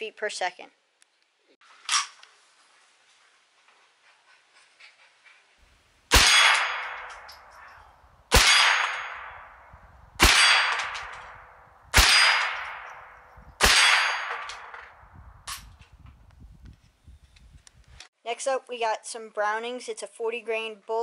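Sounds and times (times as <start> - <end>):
rifle shots: 6.1 - 7.5, 8.3 - 15.7.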